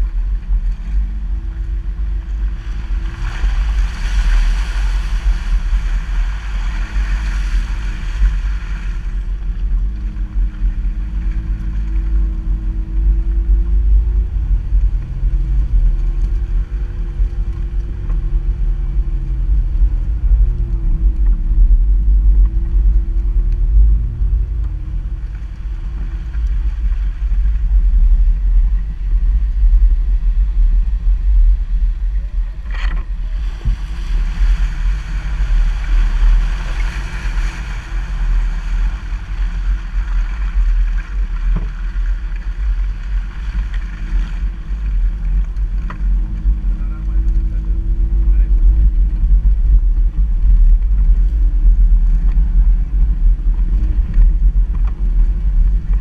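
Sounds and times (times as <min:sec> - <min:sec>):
car engine running at low revs: 0:00.0 - 0:56.0
wind buffeting microphone: 0:00.0 - 0:56.0.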